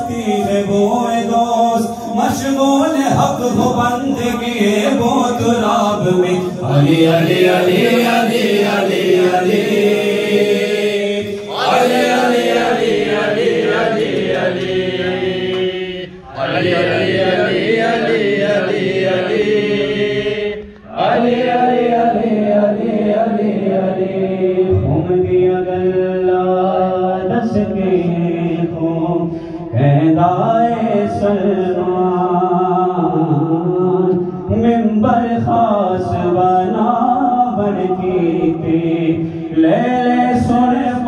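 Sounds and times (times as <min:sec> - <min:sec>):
man chanting devotional song: 0:00.0 - 0:41.0.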